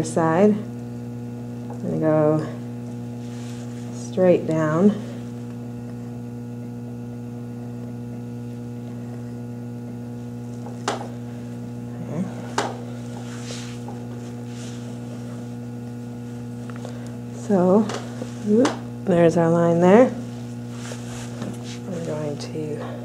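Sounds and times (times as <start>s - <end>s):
electrical mains hum: 0.0s - 23.0s.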